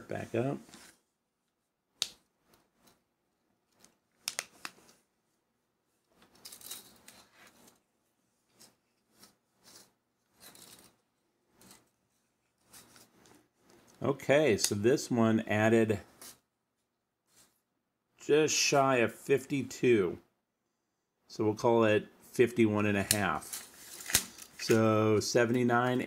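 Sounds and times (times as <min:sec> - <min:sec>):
cord rustling on tabletop: 0:00.6 - 0:14.0, 0:23.4 - 0:24.8.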